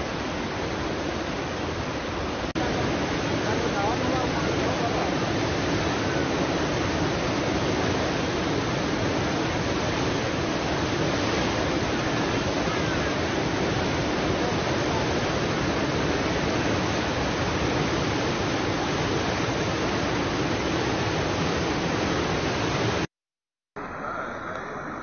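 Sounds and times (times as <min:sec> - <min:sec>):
torrent of water rushing: 0:00.0 - 0:23.1.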